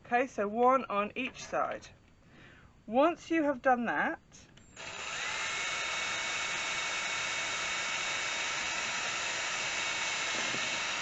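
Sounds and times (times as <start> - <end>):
drill motor whine: 4.6 - 11.0
drill bit cutting thin metal: 4.8 - 11.0.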